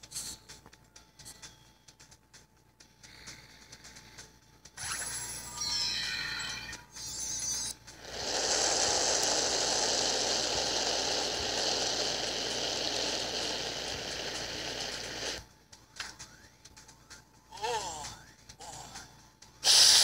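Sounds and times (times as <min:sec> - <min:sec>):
long rushing hiss: 0:08.0 - 0:15.4, 0:19.6 - 0:20.0.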